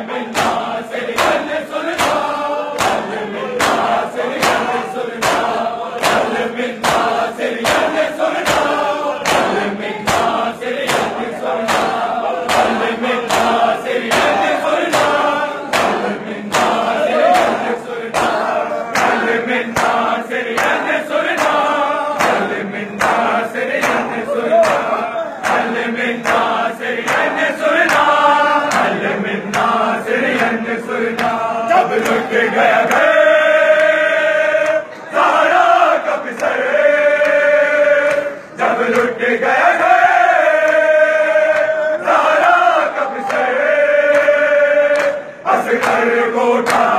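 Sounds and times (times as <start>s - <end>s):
men chanting in unison: 0.0s - 46.9s
hands slapping chests: 0.3s - 33.1s, 44.9s - 46.9s.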